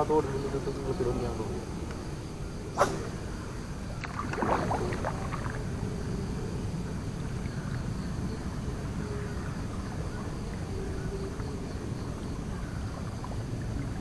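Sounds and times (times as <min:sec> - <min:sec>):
paddle splashing water: 0:02.8 - 0:06.2.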